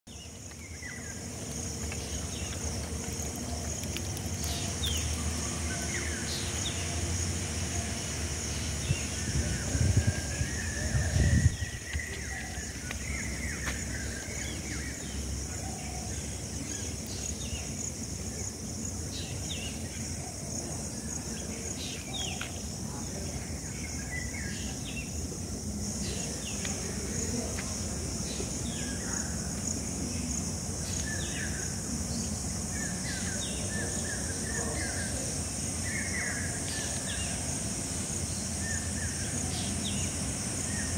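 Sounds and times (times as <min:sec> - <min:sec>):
bird calls and chirps: 0:08.5 - 0:17.8.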